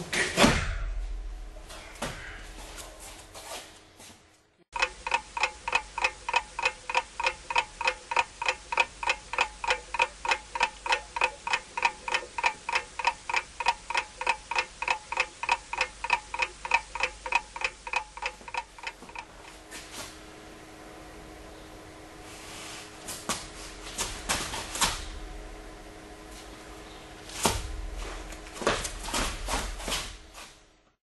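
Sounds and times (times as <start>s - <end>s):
clock ticking: 4.7s - 19.5s.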